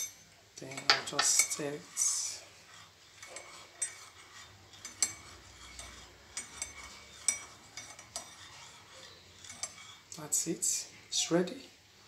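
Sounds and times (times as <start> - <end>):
liquid swishing: 0.7 - 10.2.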